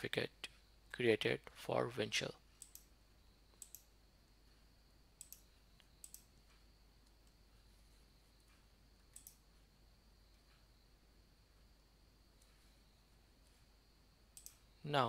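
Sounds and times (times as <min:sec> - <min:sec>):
faint high whine: 0:00.0 - 0:15.0
computer mouse clicking: 0:02.6 - 0:03.9, 0:05.2 - 0:07.4, 0:08.4 - 0:09.5, 0:14.3 - 0:14.7.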